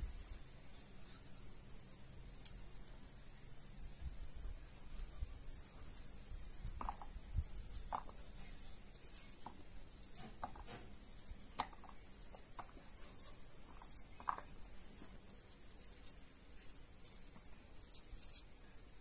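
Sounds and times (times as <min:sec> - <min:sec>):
knife scraping and cutting squash: 0:06.5 - 0:14.5.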